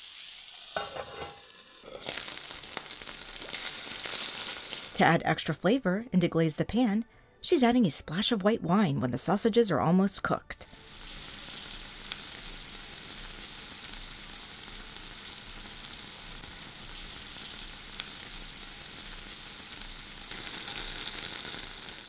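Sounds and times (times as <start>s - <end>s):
sausages sizzling in a skillet: 0.0s - 5.2s, 10.7s - 22.0s
wine bubbling in pan: 1.8s - 5.0s, 10.8s - 22.0s.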